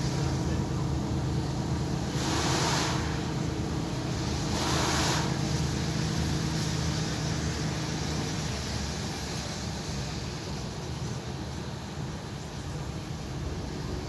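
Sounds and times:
tyre and road noise: 0:00.0 - 0:14.0
brief whoosh: 0:02.2 - 0:03.3.

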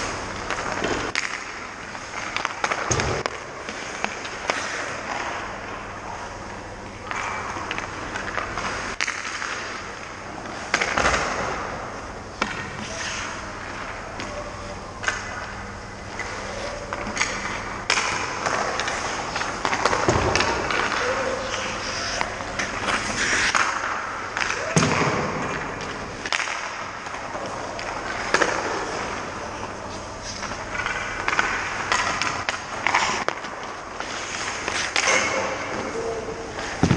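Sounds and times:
knocks of hockey sticks and pucks: 0:00.4 - 0:05.5, 0:07.0 - 0:11.8, 0:12.4 - 0:14.4, 0:15.0 - 0:29.2, 0:30.3 - 0:36.9
skate blades scraping ice: 0:03.6 - 0:05.5, 0:12.4 - 0:13.8, 0:16.1 - 0:36.9.

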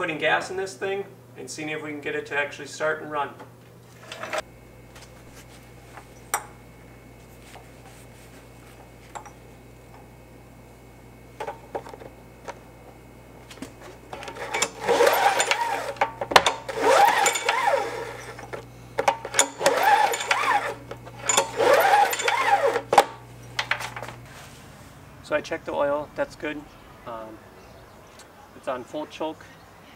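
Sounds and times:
metal threads squeaking and scraping: 0:14.2 - 0:16.0, 0:16.7 - 0:18.6, 0:19.3 - 0:23.6.

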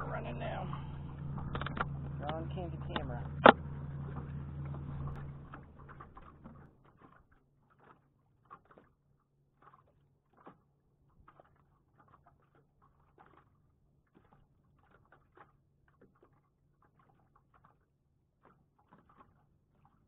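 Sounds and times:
low steady hum: 0:00.0 - 0:06.8.

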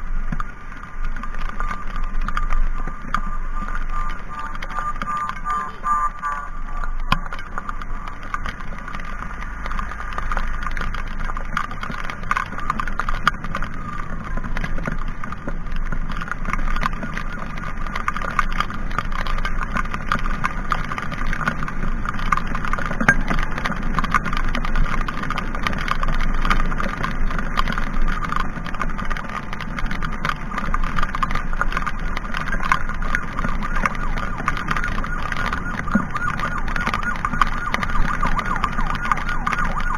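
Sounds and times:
motorcycle engine: 0:00.0 - 0:39.9
raindrops pattering on camera: 0:00.0 - 0:39.9
wind noise: 0:00.0 - 0:39.9
steady siren tone: 0:01.4 - 0:08.5, 0:12.4 - 0:15.0, 0:33.1 - 0:39.9.

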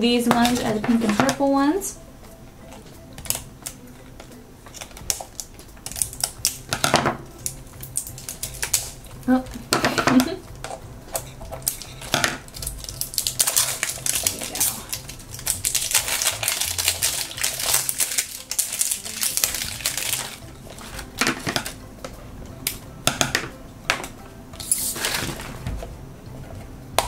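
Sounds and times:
plastic wrap crinkling: 0:02.7 - 0:21.8, 0:24.6 - 0:25.9.

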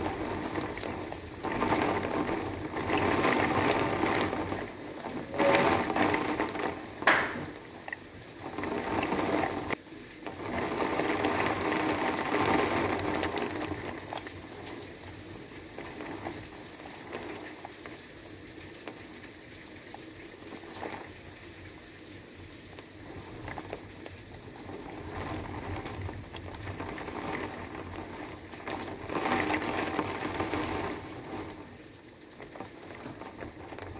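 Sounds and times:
heavy rain pouring: 0:00.0 - 0:33.9
drops tapping hard surfaces: 0:07.0 - 0:07.5.

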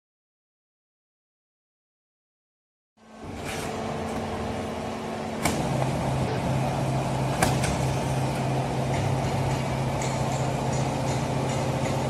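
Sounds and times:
baling press machine hum: 0:03.0 - 0:12.0.

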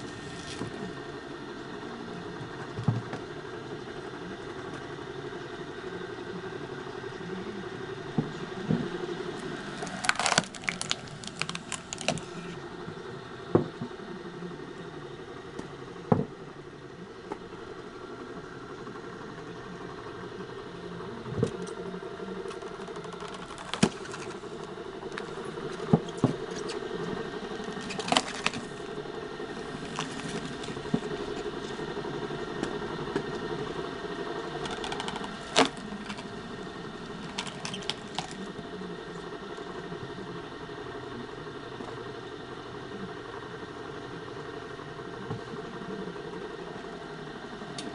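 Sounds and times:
electric motor humming: 0:00.0 - 0:13.5, 0:14.3 - 0:41.4
wood cracking as it splits: 0:09.7 - 0:12.5, 0:22.5 - 0:25.4, 0:27.6 - 0:29.0, 0:29.6 - 0:31.7, 0:34.6 - 0:36.4, 0:37.0 - 0:38.5.

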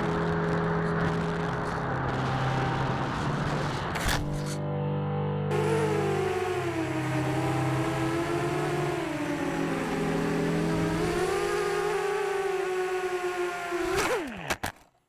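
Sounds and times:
electric motor and propeller whine: 0:05.5 - 0:14.6.

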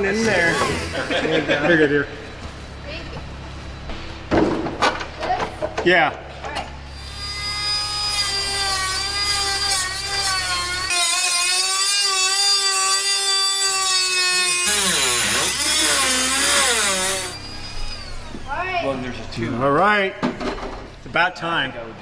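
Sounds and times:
rotary tool grinding steel: 0:06.9 - 0:18.6.

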